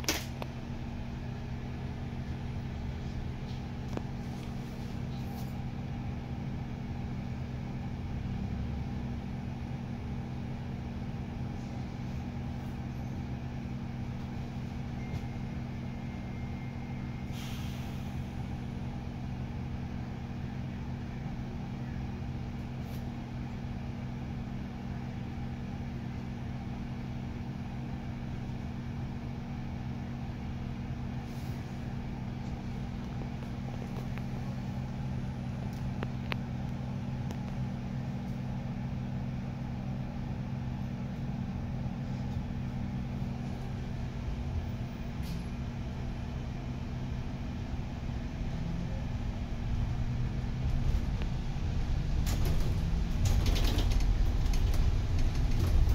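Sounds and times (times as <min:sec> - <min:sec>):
bus engine idling hum: 0:00.0 - 0:55.9
air hiss: 0:17.3 - 0:18.3.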